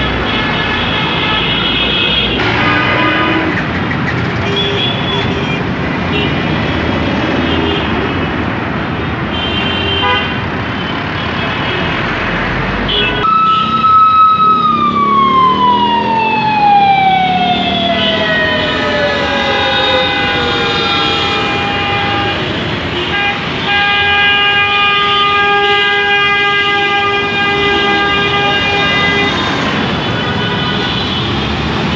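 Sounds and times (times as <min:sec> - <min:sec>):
loud street traffic: 0:00.0 - 0:31.9
long horn tones: 0:02.4 - 0:03.7, 0:17.6 - 0:29.5
siren winding down: 0:13.2 - 0:21.8.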